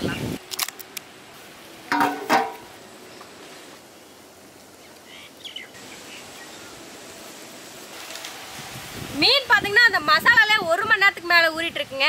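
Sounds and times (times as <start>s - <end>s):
cover clattering on a bowl: 1.9s - 2.7s.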